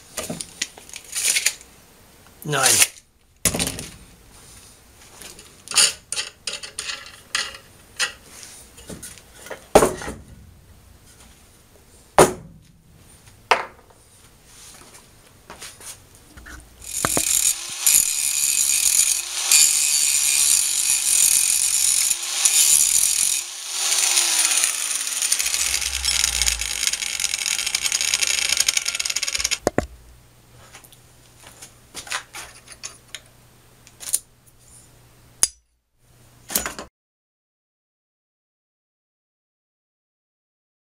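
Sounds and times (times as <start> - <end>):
angle grinder cutting metal: 16.8 - 29.7
tools knocking and clicking: 16.9 - 17.5.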